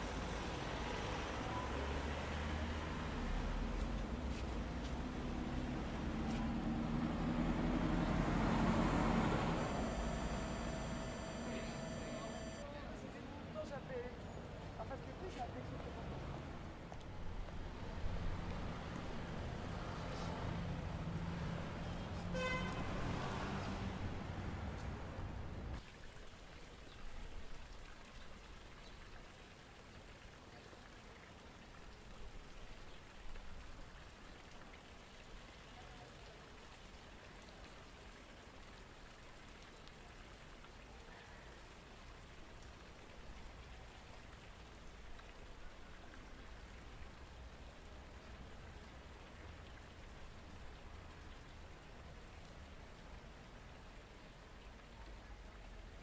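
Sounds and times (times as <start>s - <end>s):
fountain water splashing: 0.0s - 56.0s
rising chirps: 8.8s - 12.6s.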